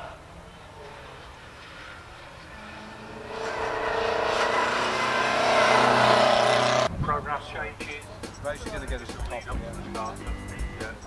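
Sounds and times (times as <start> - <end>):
racing car engine running hard: 0.9 - 6.9.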